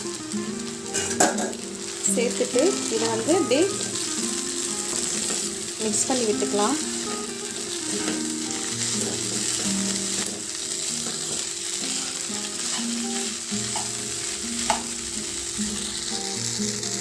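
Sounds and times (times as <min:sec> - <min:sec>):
food sizzling in oil: 0:00.0 - 0:17.0
spatula scraping through food: 0:07.9 - 0:08.3.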